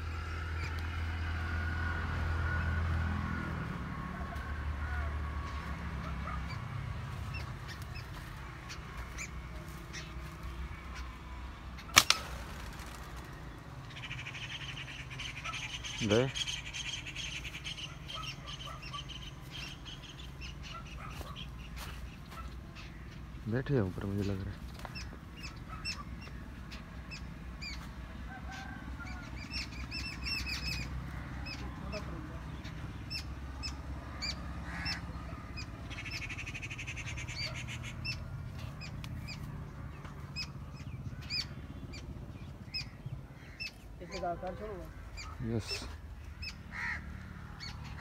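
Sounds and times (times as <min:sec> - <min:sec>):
birds chirping faintly: 0:05.4 - 0:48.0
slingshot rubber bands cracking: 0:11.9 - 0:12.8.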